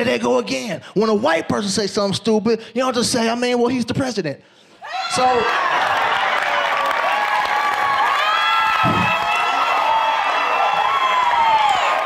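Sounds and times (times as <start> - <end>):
whoops and shouts: 4.8 - 12.0
steady clapping: 5.5 - 9.6.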